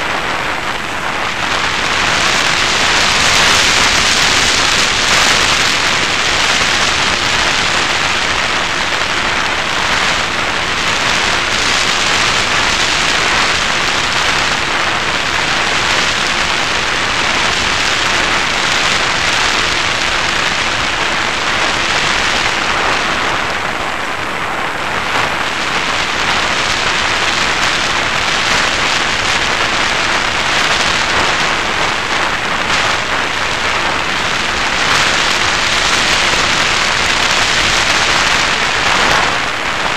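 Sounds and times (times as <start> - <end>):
electric motor and propeller hum: 0.0 - 24.1
airstream rushing over microphone: 0.0 - 39.9.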